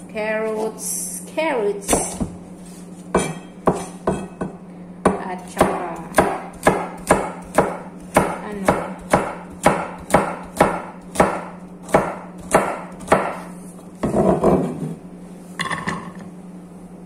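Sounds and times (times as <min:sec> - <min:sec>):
knife chopping on plastic board: 0:03.2 - 0:14.6.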